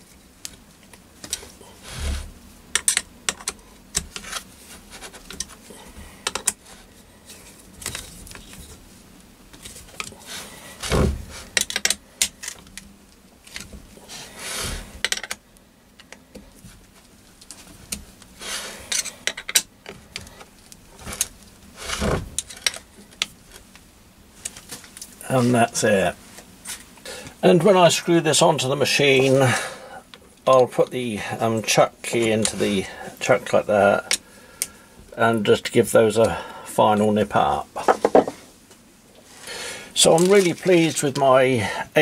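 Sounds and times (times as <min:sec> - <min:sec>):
tools handled on wooden board: 0:37.8 - 0:38.4.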